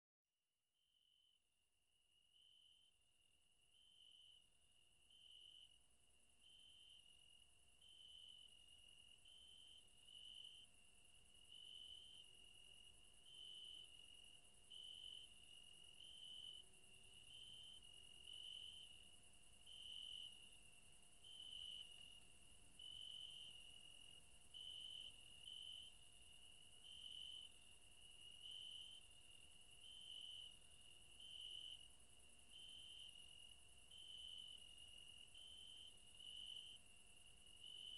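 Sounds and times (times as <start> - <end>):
crickets trilling: 24.5 - 37.9.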